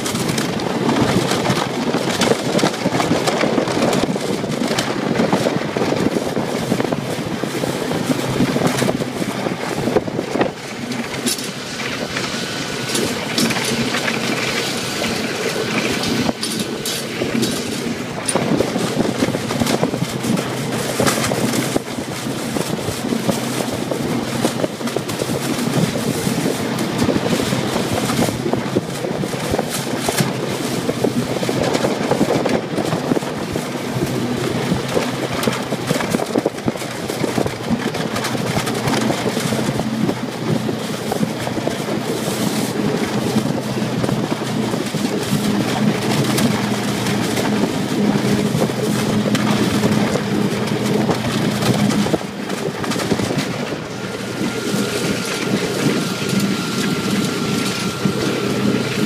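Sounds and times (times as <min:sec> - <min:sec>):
sled knocking and rattling: 0:00.0 - 0:59.0
snowmobile engine running: 0:00.0 - 0:59.0.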